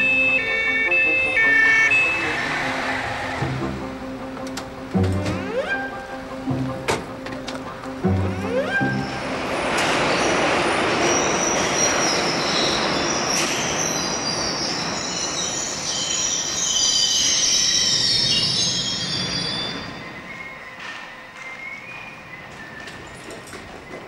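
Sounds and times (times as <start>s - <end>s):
train wheels and brakes squealing: 0.0s - 3.6s, 8.4s - 24.0s
train rumble: 0.0s - 24.0s.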